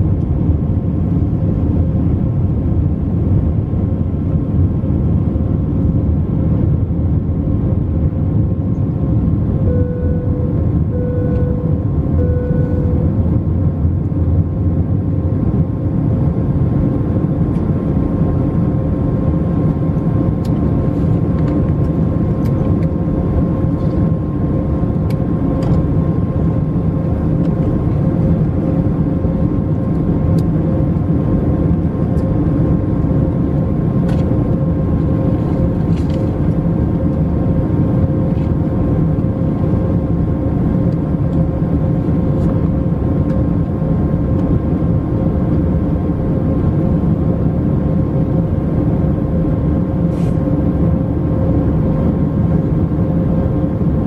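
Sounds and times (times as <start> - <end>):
jet engine drone: 0.0 - 54.0
short electronic tone: 9.6 - 13.2.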